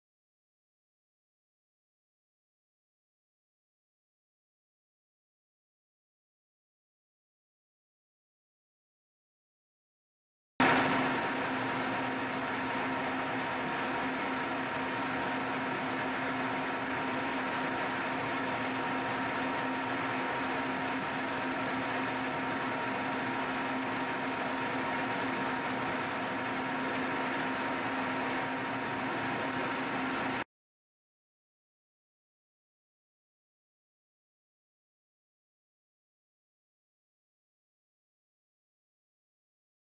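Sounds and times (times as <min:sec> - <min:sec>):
shop machinery humming: 0:10.6 - 0:30.4.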